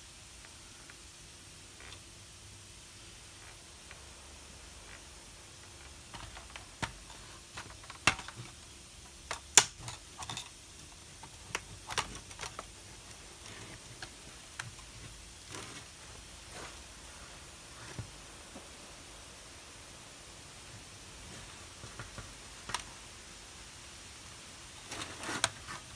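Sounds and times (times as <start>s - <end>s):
plastic clips clicking and snapping: 6.1s - 8.6s, 9.2s - 10.6s, 11.2s - 12.7s.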